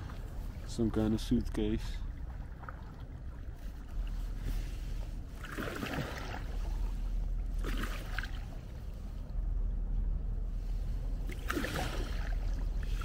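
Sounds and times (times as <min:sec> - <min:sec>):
steady low rumble: 0:00.0 - 0:13.0
paddle splashing in water: 0:02.0 - 0:08.7, 0:11.2 - 0:13.0.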